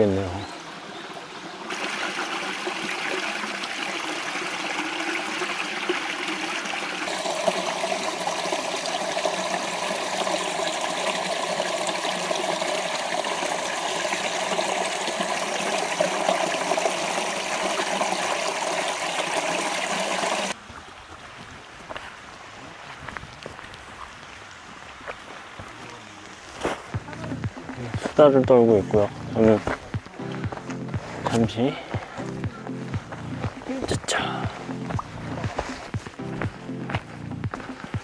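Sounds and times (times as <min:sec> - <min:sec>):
stream splashing over rocks: 0:00.0 - 0:32.2, 0:32.8 - 0:38.0.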